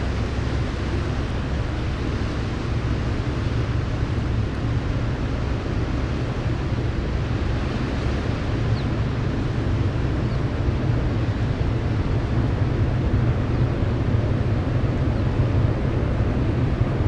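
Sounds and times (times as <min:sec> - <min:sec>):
ship engine and propeller droning: 0:00.0 - 0:17.0
wind on microphone: 0:00.0 - 0:17.0.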